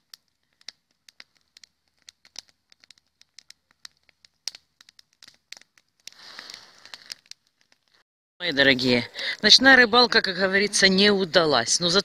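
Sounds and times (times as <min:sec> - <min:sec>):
burning sticks snapping: 0:00.0 - 0:08.0
campfire crackling: 0:00.0 - 0:12.0.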